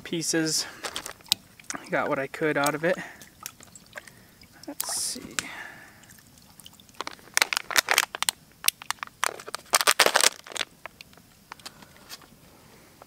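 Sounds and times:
paper and plastic crinkling: 0.7s - 1.3s, 7.0s - 11.0s.

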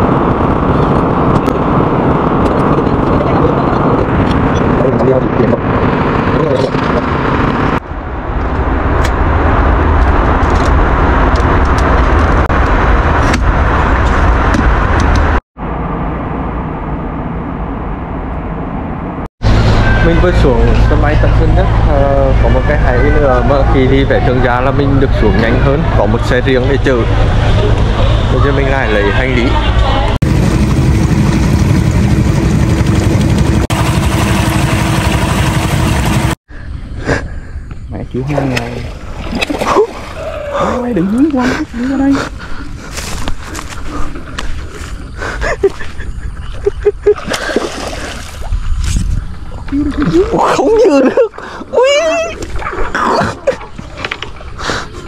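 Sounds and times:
airliner cabin rumble: 0.0s - 55.0s
motorboat engine running: 19.4s - 36.4s
wake rushing along hull: 38.1s - 44.8s, 47.2s - 54.6s.

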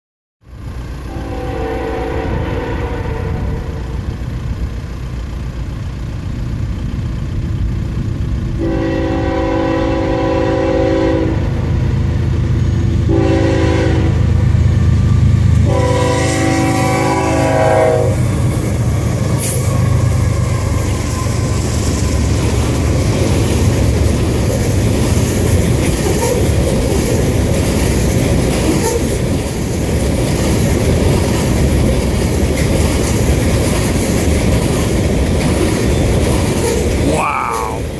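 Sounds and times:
locomotive engines rumbling: 0.5s - 37.9s
train horn blasts: 1.1s - 4.1s, 8.6s - 11.7s, 13.0s - 14.4s, 15.6s - 18.3s
train wheels clattering on rails: 18.2s - 37.0s.

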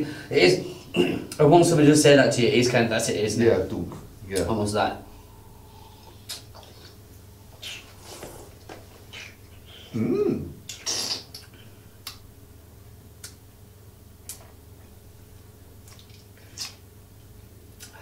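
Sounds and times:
person humming mm: 5.2s - 6.9s, 9.1s - 11.4s
mouth clicks and smacks: 6.0s - 9.6s, 10.6s - 12.3s, 13.2s - 13.5s, 14.2s - 14.6s, 15.8s - 16.9s, 17.7s - 18.0s.

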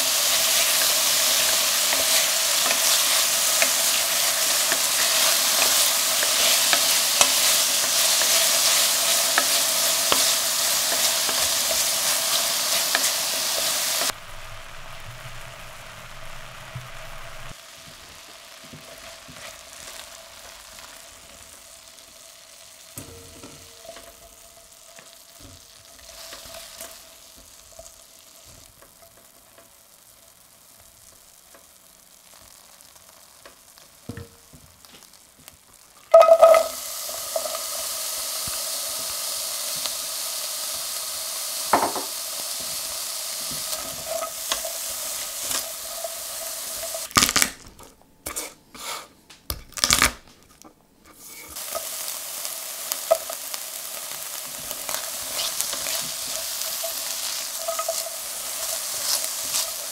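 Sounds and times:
spatula scraping a pan: 0.0s - 14.2s, 41.6s - 47.1s, 48.2s - 49.2s, 51.1s - 52.0s, 54.6s - 59.9s
loud sizzle in hot oil: 0.0s - 47.5s, 51.2s - 59.9s
oil crackling: 0.0s - 47.9s, 49.6s - 50.6s, 51.5s - 59.9s
food sizzling in oil: 0.0s - 49.0s, 51.2s - 59.9s.

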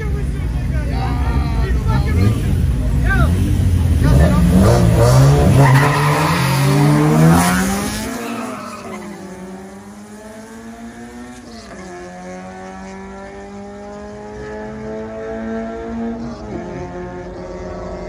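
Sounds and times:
car accelerating hard: 2.0s - 18.0s.

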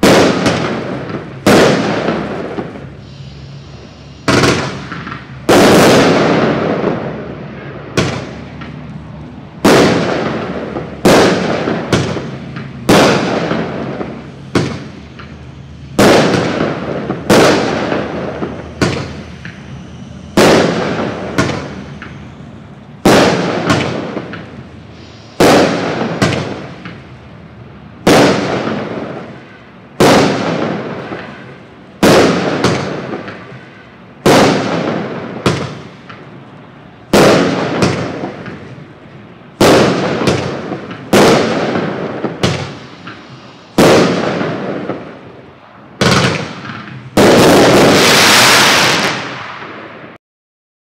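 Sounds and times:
fireworks bangs echoing: 0.0s - 50.2s.

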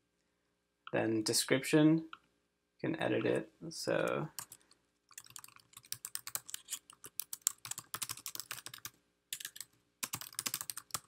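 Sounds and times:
rapid typing on keyboard: 4.4s - 11.0s.

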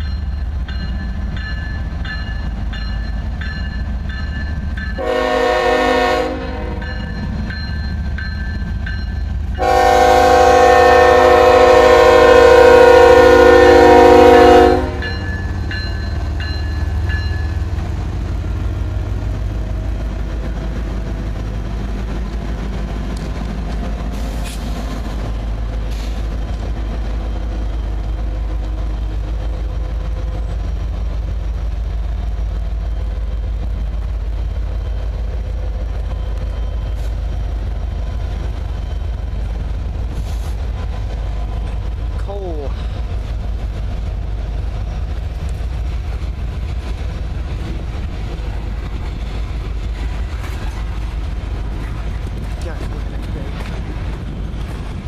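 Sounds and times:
freight train rumbling past: 0.0s - 55.0s
train air horn: 5.0s - 6.8s, 9.6s - 15.1s.

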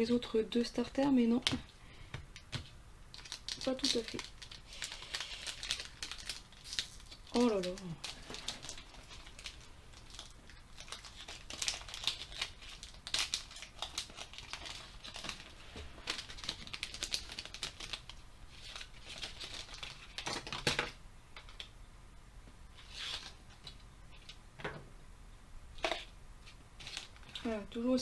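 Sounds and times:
foil wrapper crinkling and tearing: 3.1s - 20.8s, 26.8s - 27.6s.

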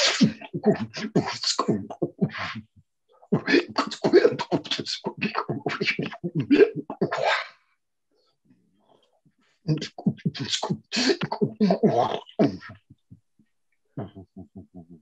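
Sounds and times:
man speaking rapid syllables: 0.0s - 7.3s, 9.7s - 13.2s, 14.0s - 15.0s.

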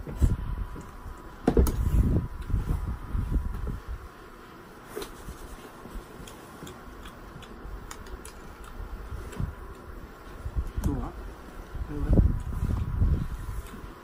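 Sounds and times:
eating noodles clicks: 6.2s - 9.9s.

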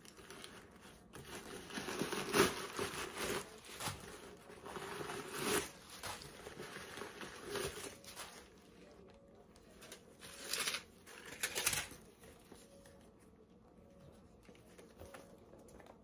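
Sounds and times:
bag and paper rustling: 0.0s - 8.8s.

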